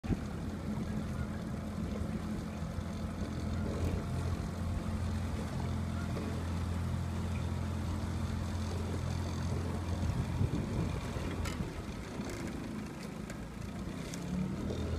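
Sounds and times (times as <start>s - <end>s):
motorboat engine humming: 0.0s - 14.9s
water noise: 0.0s - 14.9s.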